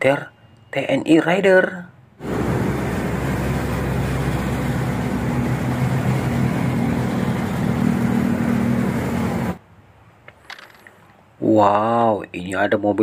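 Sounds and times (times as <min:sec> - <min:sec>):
road and traffic noise: 0:00.0 - 0:11.4
low engine hum: 0:02.2 - 0:09.6
vehicles driving past: 0:02.2 - 0:09.7.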